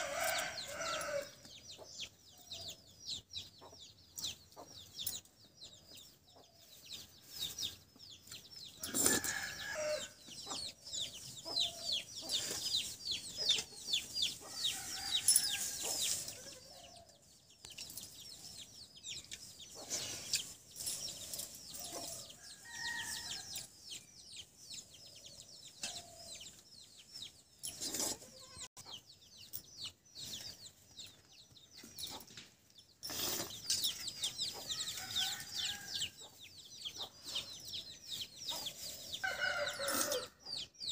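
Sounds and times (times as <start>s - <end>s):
chickens clucking: 7.8s - 14.6s, 36.2s - 37.9s.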